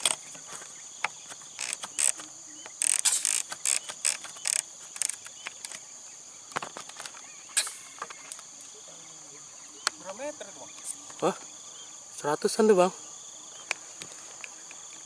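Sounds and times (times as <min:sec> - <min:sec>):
high-pitched insect buzz: 0:00.0 - 0:15.0
sharp clicks: 0:01.0 - 0:05.8.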